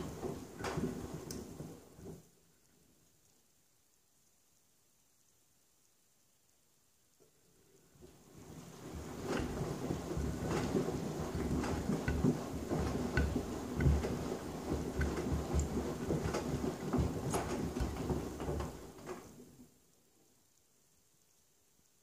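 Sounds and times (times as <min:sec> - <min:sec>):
washing machine motor hum: 0:08.2 - 0:19.1
sandals knocking against drum: 0:11.4 - 0:18.5.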